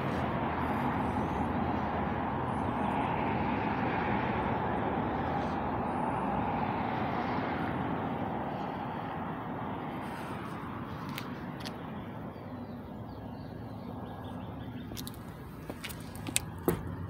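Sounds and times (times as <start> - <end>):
passing vehicle rushing: 0.0 - 12.6.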